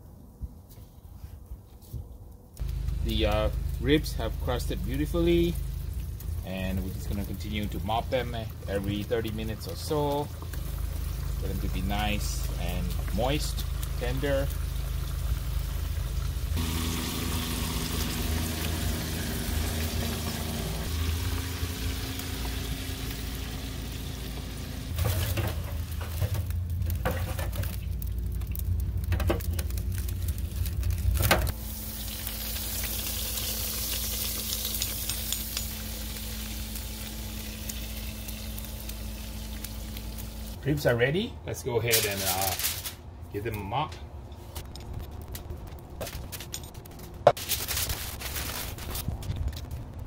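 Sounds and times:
wood fire crackling and sizzling: 0.0 - 50.0
steady low hum: 2.4 - 41.8.

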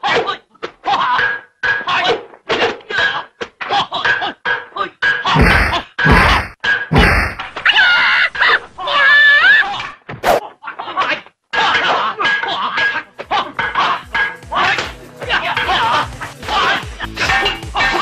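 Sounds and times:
heavy thuds: 5.3 - 7.7
chopsticks whacking and thunking: 11.6 - 18.0
person crying out: 13.4 - 18.0.

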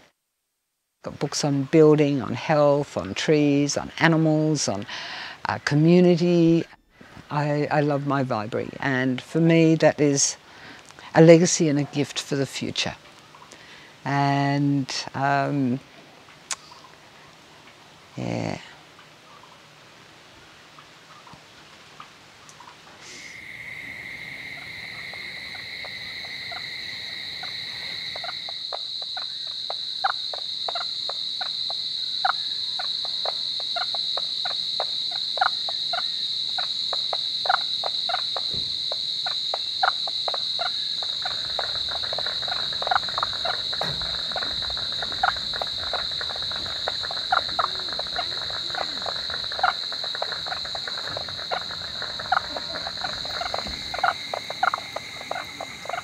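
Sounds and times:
low insect trill: 22.5 - 56.0
high-pitched insect drone: 23.1 - 56.0
sharp animal calls: 23.1 - 56.0.

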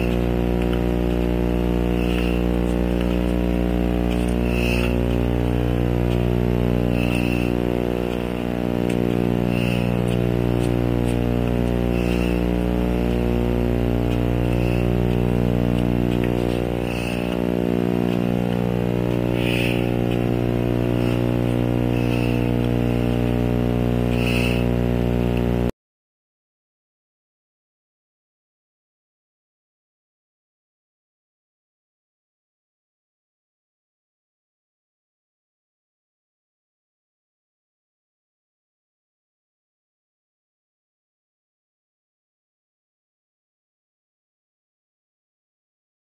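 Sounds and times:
loud humming drone: 0.0 - 25.7.

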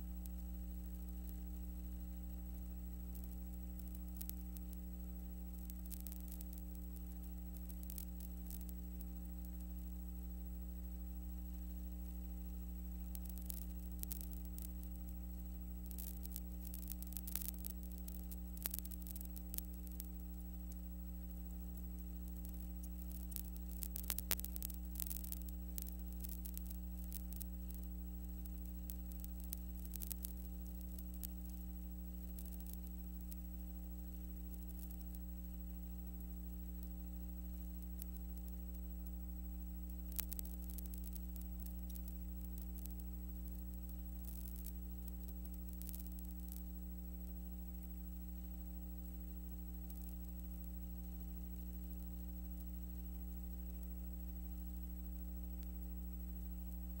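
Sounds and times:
crackling clicks: 0.0 - 57.0
electrical mains hum: 0.0 - 57.0.

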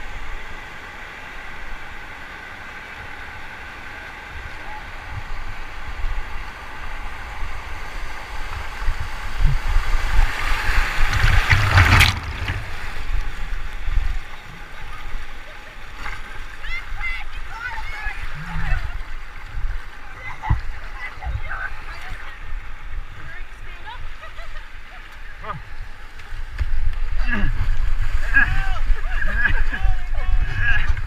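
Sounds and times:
rushing whitewater: 0.0 - 26.1, 27.0 - 31.0
burst of water: 10.2 - 13.4.

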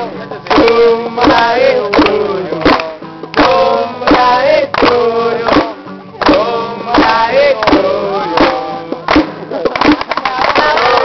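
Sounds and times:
person singing: 0.0 - 9.7
guitar strumming: 0.0 - 11.0.

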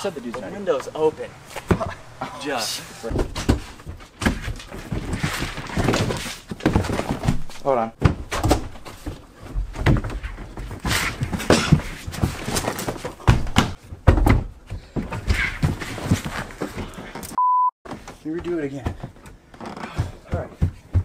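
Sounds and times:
electronic beep: 17.4 - 17.7
dull thuds on carpeted stairs: 19.9 - 21.0.

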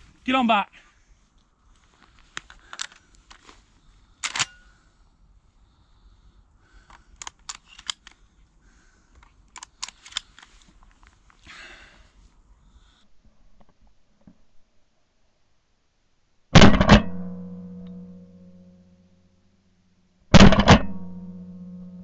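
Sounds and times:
short rustle: 0.0 - 4.8, 9.7 - 12.3
shotgun clicks and knocks: 4.2 - 4.6, 6.9 - 8.2, 9.2 - 10.5, 16.6 - 18.0, 20.4 - 21.3.

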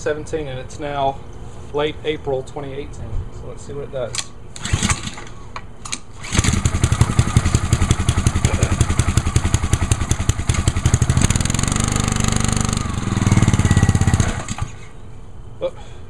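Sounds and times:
recoil starter pull: 4.2 - 14.8
small engine running: 4.6 - 5.4, 6.1 - 14.9.

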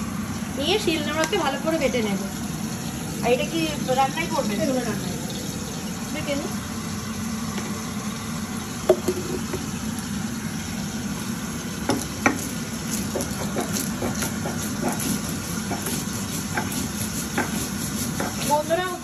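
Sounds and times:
stone roller knocking on slab: 8.9 - 9.6, 11.9 - 12.5, 13.1 - 18.8
stone grinding seeds: 12.9 - 19.0.

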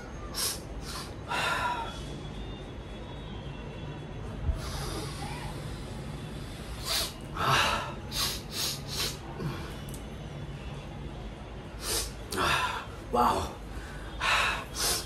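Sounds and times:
man sniffing hard: 0.3 - 2.0, 6.4 - 9.4, 11.8 - 12.9, 14.1 - 15.0.

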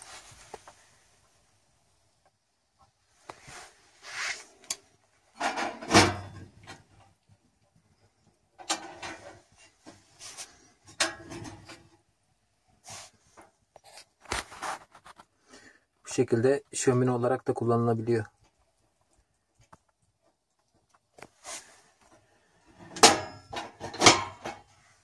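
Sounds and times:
metal stove door scraping: 5.4 - 6.8, 8.6 - 11.9, 22.6 - 24.7.

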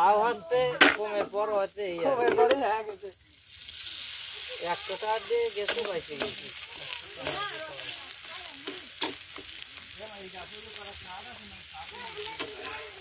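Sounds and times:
pancake sizzling in pan: 0.0 - 13.0
spatula tapping pan: 8.6 - 9.6.

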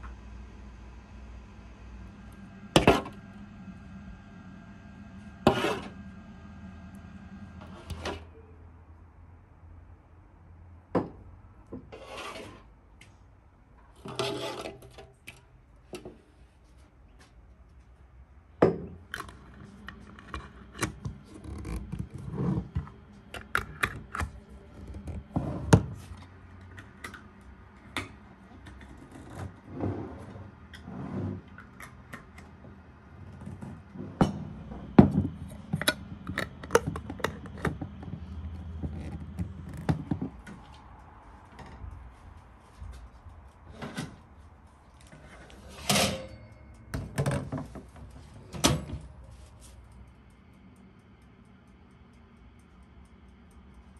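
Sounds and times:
metal spoon scraping metal basin: 5.4 - 6.0, 12.0 - 12.7, 14.0 - 15.0.

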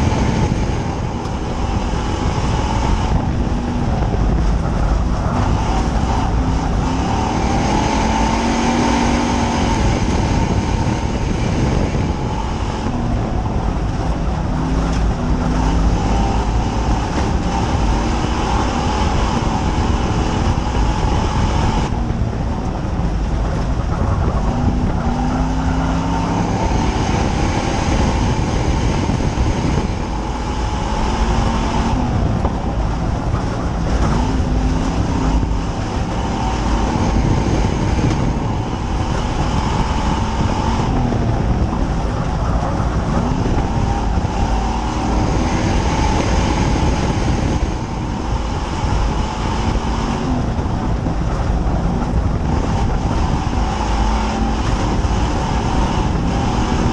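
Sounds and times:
heavy low rumble: 0.0 - 56.9
race car engine at speed: 0.0 - 56.9.

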